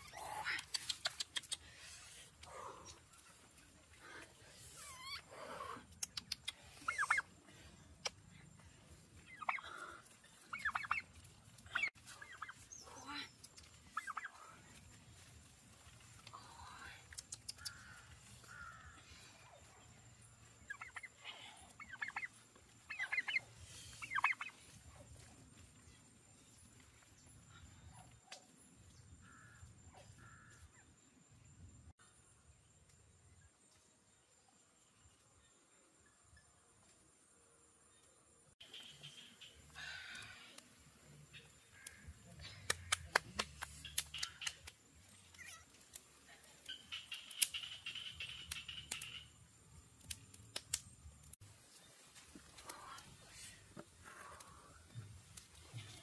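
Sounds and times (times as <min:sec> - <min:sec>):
sharp clicks: 0:00.6 - 0:01.7, 0:17.0 - 0:18.0, 0:42.7 - 0:46.1, 0:46.7 - 0:49.3, 0:50.0 - 0:51.4
turkey calling: 0:06.8 - 0:07.3, 0:09.2 - 0:09.8, 0:10.4 - 0:12.7, 0:13.9 - 0:14.4, 0:20.6 - 0:24.6, 0:46.7 - 0:49.3.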